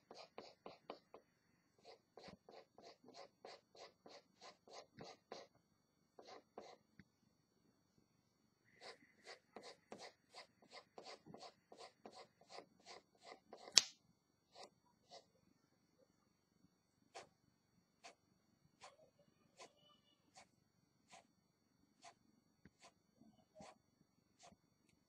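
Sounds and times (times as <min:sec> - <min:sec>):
pencil scratching on paper: 0:00.0 - 0:01.2, 0:01.8 - 0:05.5, 0:06.2 - 0:06.9, 0:08.8 - 0:13.8, 0:14.5 - 0:15.3, 0:17.1 - 0:17.3, 0:18.0 - 0:18.2, 0:18.8 - 0:19.0, 0:19.6 - 0:20.5, 0:21.1 - 0:21.3, 0:22.0 - 0:23.0, 0:23.6 - 0:23.8, 0:24.4 - 0:24.6.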